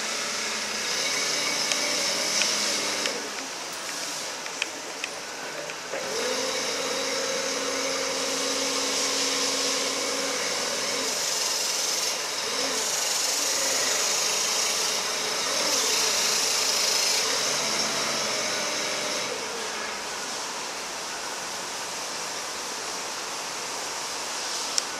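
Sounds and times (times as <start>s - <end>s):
forklift engine running: 0.0s - 19.6s
hydraulic hiss: 0.0s - 24.9s.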